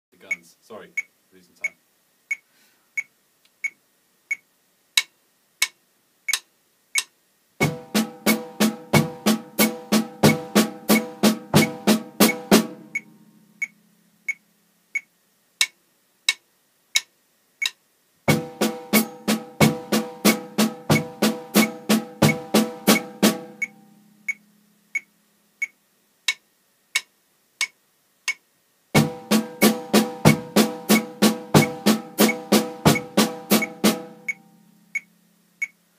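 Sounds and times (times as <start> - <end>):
metronome click: 0.3 - 2.4, 5.0 - 7.2, 10.3 - 17.8, 20.2 - 28.4, 30.3 - 35.8
hi-hat pedal: 5.0 - 16.4, 17.0 - 28.4, 29.0 - 35.9
bass drum: 7.6 - 13.0, 18.3 - 23.7, 29.0 - 34.4
snare drum strokes: 7.6 - 13.0, 18.3 - 23.8, 29.0 - 34.4.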